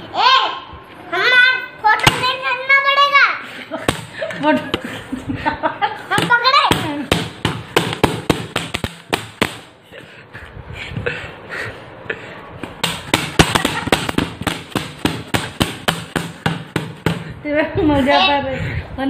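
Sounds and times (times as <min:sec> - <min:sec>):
plastic bottle being whacked: 0:02.0 - 0:02.4, 0:06.2 - 0:09.7, 0:12.6 - 0:17.3.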